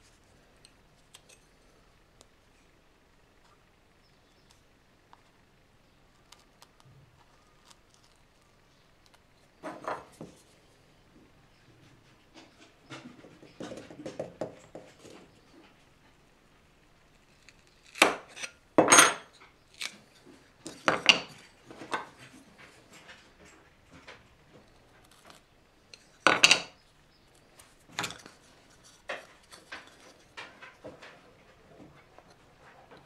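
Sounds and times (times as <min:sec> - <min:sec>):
hard objects knocking and clattering: 0:12.3 - 0:15.4, 0:20.6 - 0:24.7, 0:26.2 - 0:26.8, 0:29.0 - 0:33.0.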